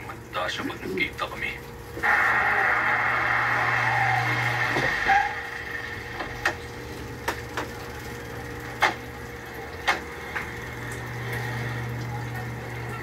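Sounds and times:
television sound: 0:00.0 - 0:05.4, 0:11.4 - 0:13.0.

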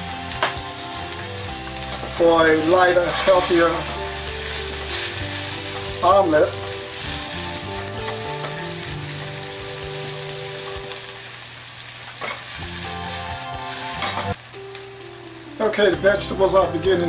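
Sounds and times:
food sizzling in a skillet: 0:00.0 - 0:17.0
spatula scraping and clattering pan: 0:01.8 - 0:09.2.

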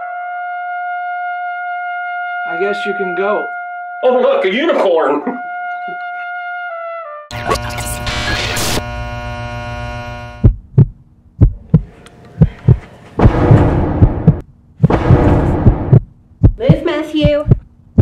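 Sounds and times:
heartbeat double thumps: 0:10.2 - 0:18.0
loud impact hit: 0:13.2 - 0:16.0.

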